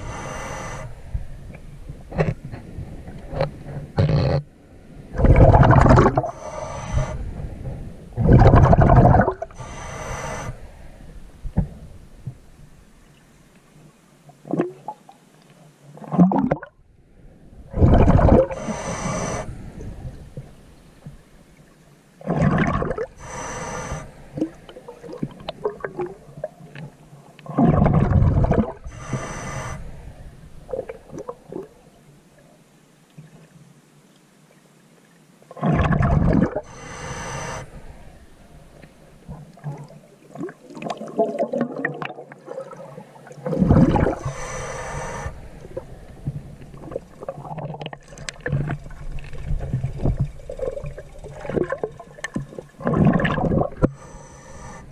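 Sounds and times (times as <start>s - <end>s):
diver breathing underwater: 0.0s - 1.2s, 5.4s - 11.1s, 17.8s - 20.0s, 23.1s - 25.0s, 28.8s - 30.2s, 36.5s - 39.0s, 43.5s - 47.0s, 52.8s - 54.9s
water noise: 0.0s - 54.9s
exhaled bubbles gurgling underwater: 5.1s - 10.6s, 16.0s - 16.8s, 17.7s - 20.6s, 22.2s - 26.8s, 27.4s - 31.8s, 35.5s - 54.9s.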